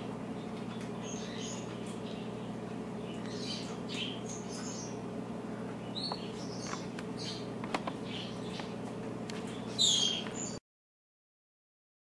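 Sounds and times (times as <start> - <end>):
bird chirps: 0.4 - 5.0, 5.8 - 8.8, 9.5 - 10.6.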